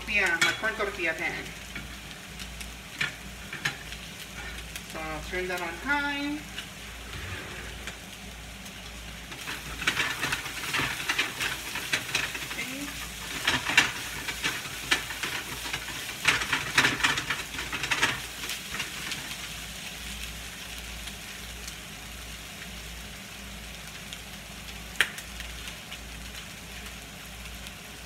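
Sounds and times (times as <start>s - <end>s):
chicken sizzling in a frying pan: 0.0s - 28.0s
spatula scraping and stirring: 2.8s - 4.9s, 6.5s - 8.1s, 9.2s - 19.6s.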